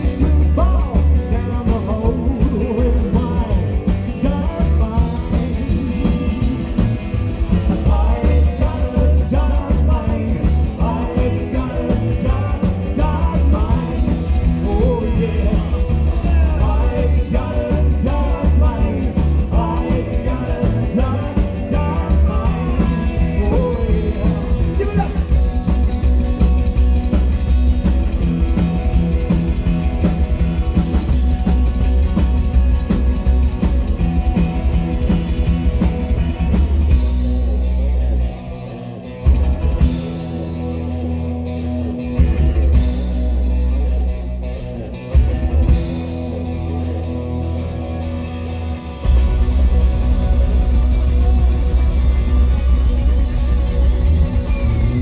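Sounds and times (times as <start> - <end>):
man singing: 0.0 - 6.9, 7.7 - 25.6
rockabilly band playing: 0.0 - 55.0.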